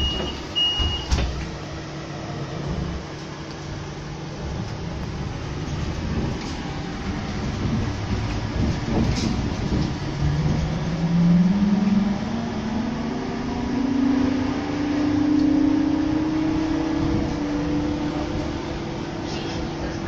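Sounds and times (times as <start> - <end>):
cabin ride rumble: 0.0 - 20.0
trolleybus electric drive whining: 0.0 - 20.0.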